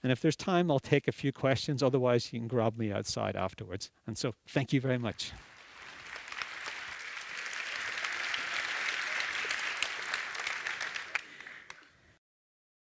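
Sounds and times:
audience applauding: 5.0s - 12.0s.

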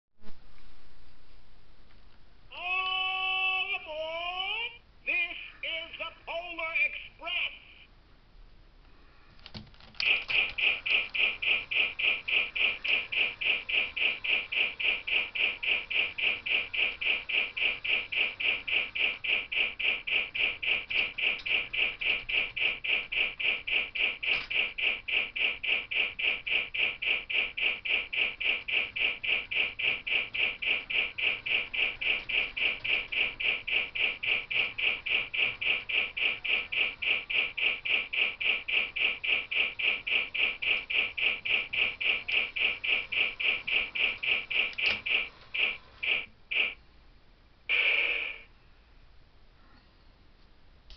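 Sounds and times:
model train rhythmic pulsing: 10.0s - 46.8s.

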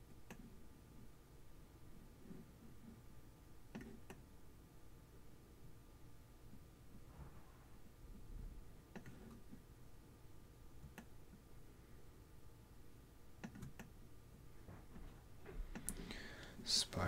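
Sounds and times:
computer mouse clicks: 0.2s - 0.5s, 3.7s - 4.2s, 8.9s - 9.5s, 10.8s - 11.2s, 13.4s - 14.0s.

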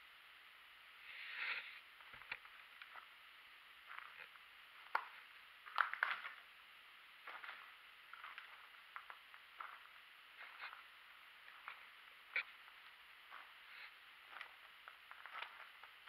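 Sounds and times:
footsteps crunching on twigs: 7.2s - 10.9s, 11.5s - 16.0s.

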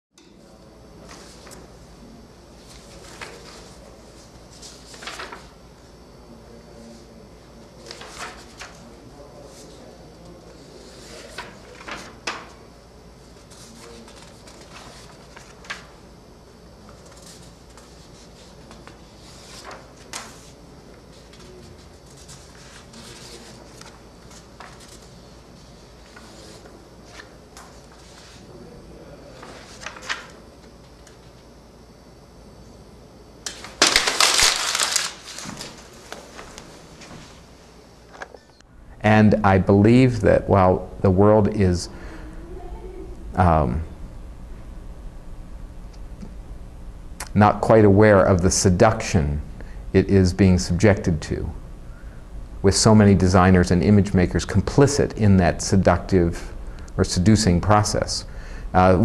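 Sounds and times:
low steady hum: 0.2s - 59.0s
paper rustling and crumpling: 2.7s - 5.5s, 7.8s - 8.9s, 10.9s - 12.5s, 16.8s - 20.6s, 21.2s - 25.1s, 29.4s - 30.4s, 33.5s - 37.2s
paper cards crackling: 33.5s - 36.7s.

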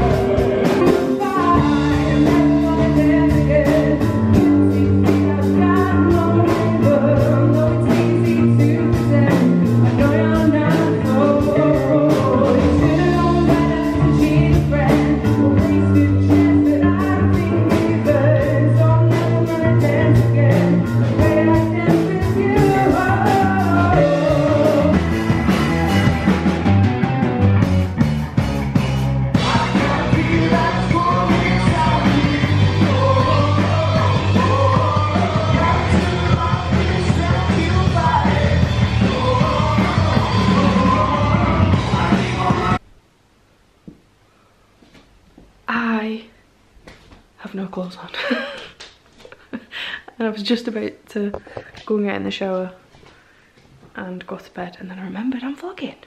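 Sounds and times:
woman singing: 0.0s - 25.2s, 29.4s - 42.8s
electric guitar: 0.0s - 42.8s
bass guitar: 0.0s - 42.9s
drums: 0.0s - 43.1s, 46.8s - 54.1s.

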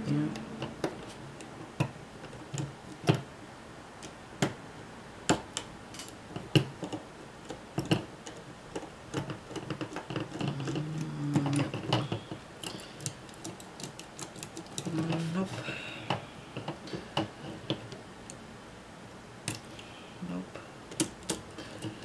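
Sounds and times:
small plastic parts clicking: 5.3s - 15.2s.

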